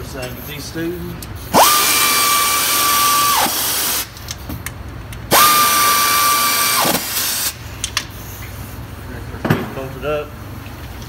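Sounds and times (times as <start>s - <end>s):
power tool motor whine: 1.6s - 4.1s, 5.3s - 7.6s.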